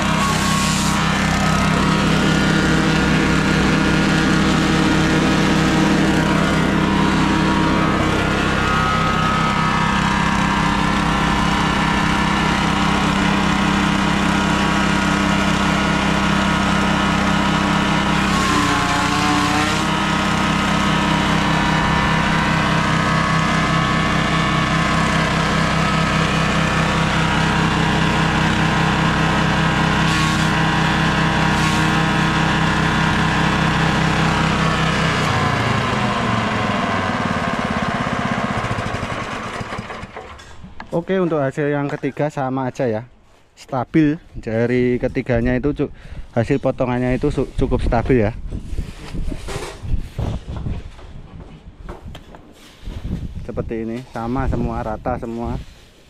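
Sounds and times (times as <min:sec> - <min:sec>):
grass being chopped by blades: 0:00.0 - 0:36.0
small engine running: 0:00.0 - 0:40.6.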